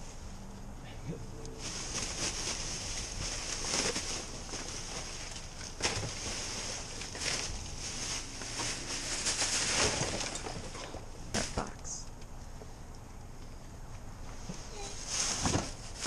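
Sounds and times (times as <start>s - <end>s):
plastic bags and paper rustling: 1.6s - 12.0s, 14.6s - 16.0s.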